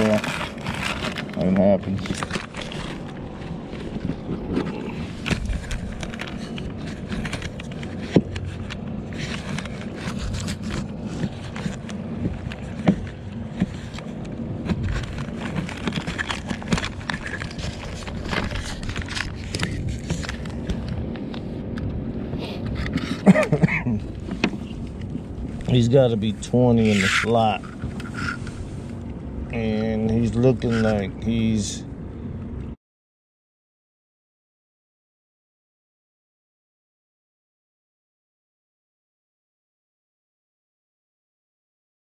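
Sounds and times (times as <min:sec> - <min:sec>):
wind: 0:00.0 - 0:32.8.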